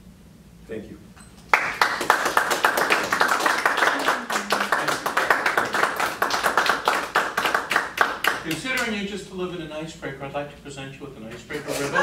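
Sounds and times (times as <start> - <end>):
people applauding: 1.5 - 9.0.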